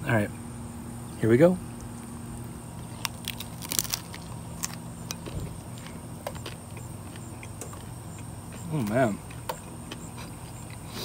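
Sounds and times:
taco shell crunching: 2.0s - 10.9s.

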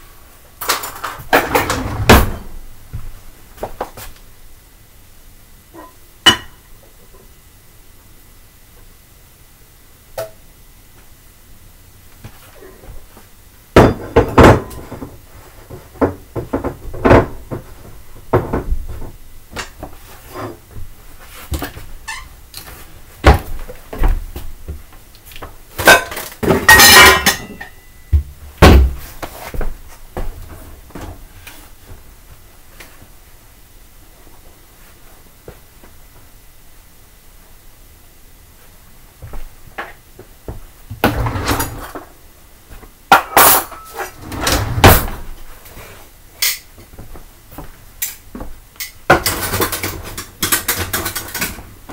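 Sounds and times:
dense rattling clatter of dishes: 25.8s - 27.6s, 49.1s - 51.6s
plates and crockery clinking: 25.8s - 28.0s.

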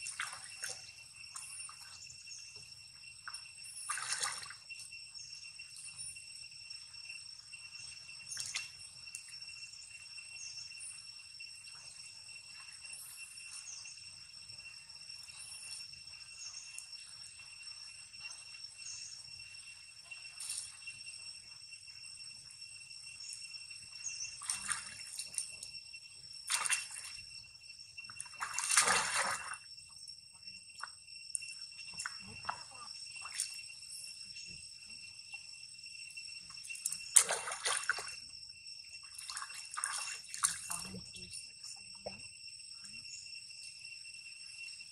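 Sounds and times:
monkeys splashing in water: 0.0s - 2.0s, 3.3s - 4.7s, 24.2s - 25.7s, 26.4s - 27.3s, 28.1s - 29.7s, 31.8s - 33.8s, 36.8s - 38.2s, 39.0s - 41.4s
insects droning: 0.0s - 44.9s.

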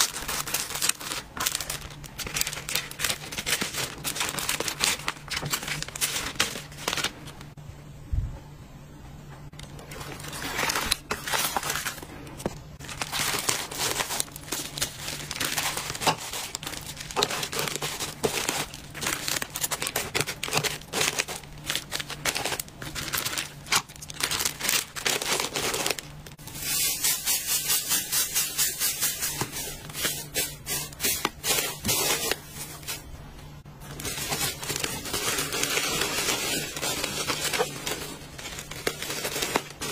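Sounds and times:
paper filler rustling: 0.0s - 7.5s, 9.6s - 27.0s, 28.7s - 33.1s, 33.8s - 39.9s
plastic packaging crinkling: 0.0s - 7.5s, 9.6s - 26.8s, 33.7s - 39.9s.

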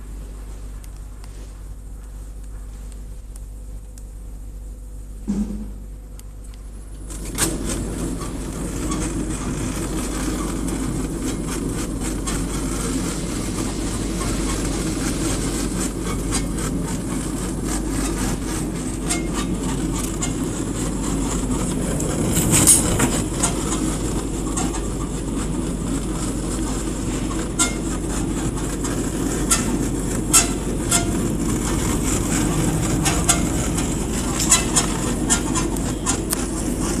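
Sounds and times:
constant hum: 0.0s - 37.0s
wrapping machine running: 6.8s - 37.0s.

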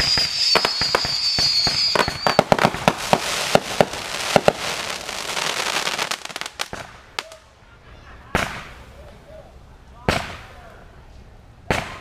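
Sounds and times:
fireworks crackling: 0.0s - 7.6s, 8.3s - 9.2s
fireworks pops: 8.3s - 8.8s.

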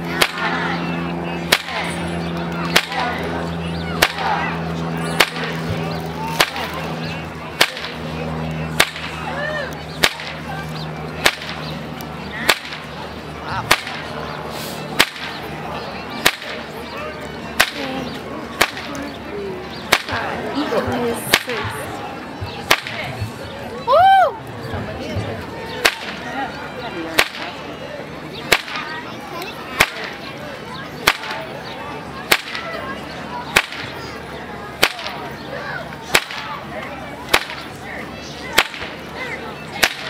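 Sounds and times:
whip cracking: 0.1s - 0.8s, 1.4s - 7.0s, 7.6s - 8.1s, 8.7s - 9.2s, 10.0s - 10.4s, 11.2s - 11.7s, 12.4s - 12.9s, 13.7s - 14.1s, 14.7s - 15.4s, 16.2s - 16.7s, 17.6s - 17.8s, 18.6s - 18.9s, 19.9s - 20.2s, 21.3s - 21.6s, 22.7s - 23.1s, 25.8s - 26.2s, 27.2s - 27.6s, 28.5s - 28.9s, 29.8s - 30.2s, 31.0s - 31.4s, 32.3s - 32.7s, 33.6s - 34.0s, 34.8s - 35.2s, 36.1s - 36.6s, 37.3s - 37.7s, 38.5s - 39.0s, 39.8s - 40.0s.

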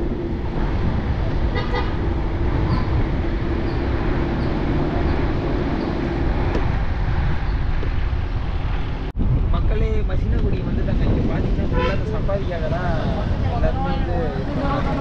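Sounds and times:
vehicle engine drone: 0.0s - 9.5s
road and wind noise: 0.0s - 15.0s.

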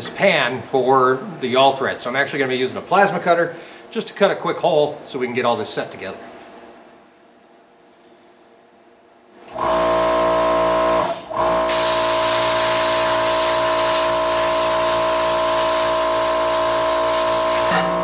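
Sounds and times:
plasma cutter hissing and whining: 11.7s - 18.0s.

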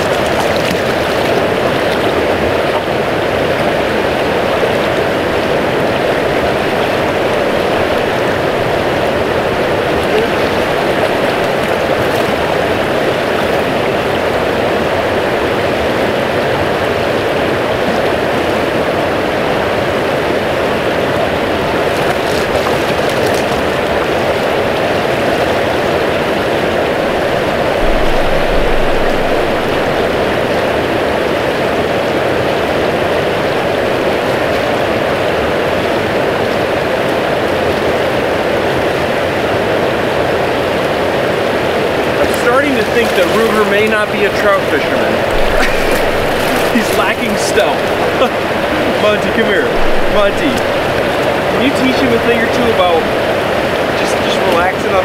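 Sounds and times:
river rushing: 0.0s - 55.0s
low thumps: 26.8s - 31.3s, 45.2s - 51.6s.

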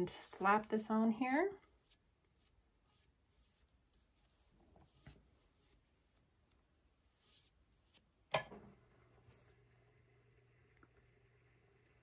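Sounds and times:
brush swishing glue: 0.1s - 8.3s
faint steady hum: 3.2s - 12.0s.

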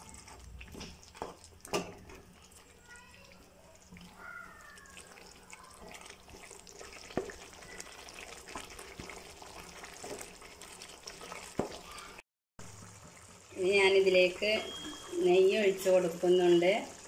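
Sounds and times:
spoon stirring thick gravy: 0.0s - 12.2s
soft wet sizzle: 0.0s - 17.0s.

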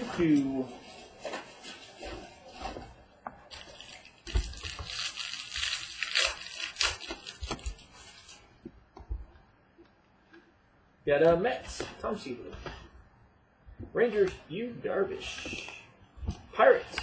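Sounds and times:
foil wrapper crinkling and tearing: 3.4s - 8.4s.

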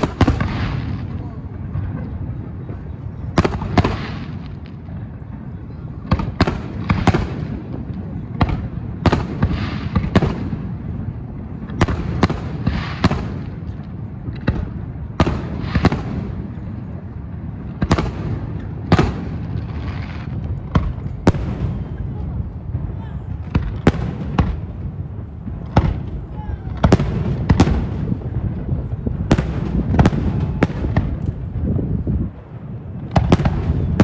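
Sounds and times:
fireworks bursting: 0.0s - 34.0s.

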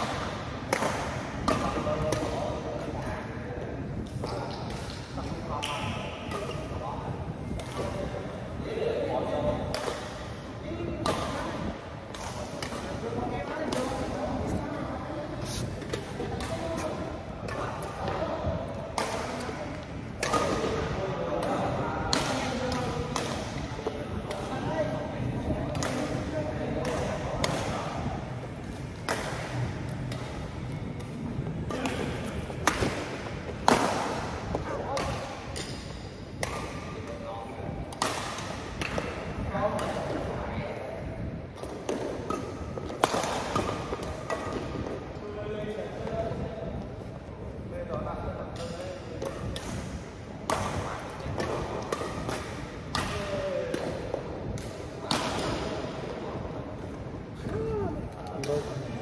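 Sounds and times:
rackets hitting shuttlecock: 0.0s - 3.0s, 4.2s - 6.8s, 7.5s - 8.3s, 9.2s - 10.3s, 10.9s - 14.6s, 15.7s - 18.2s, 18.8s - 40.4s, 41.6s - 45.1s, 48.5s - 57.6s.

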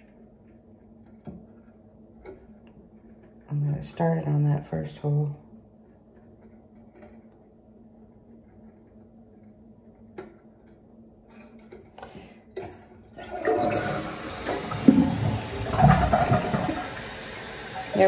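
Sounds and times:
toilet flushing: 13.1s - 18.0s.

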